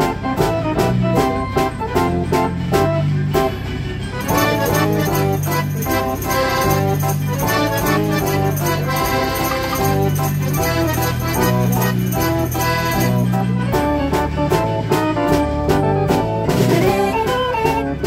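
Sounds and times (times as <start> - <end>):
dance organ playing: 0.0 - 18.0
drum and cymbal beats: 4.2 - 18.0.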